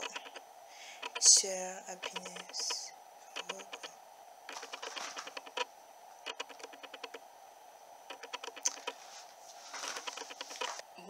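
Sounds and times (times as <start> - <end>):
faint steady hiss: 0.0 - 11.0
rapid light clicks: 3.4 - 3.9, 4.5 - 5.7, 6.3 - 7.2, 8.1 - 9.0.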